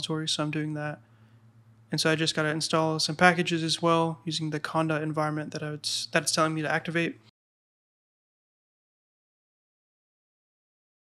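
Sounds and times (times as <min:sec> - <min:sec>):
man speaking: 0:00.0 - 0:01.0, 0:01.9 - 0:07.3.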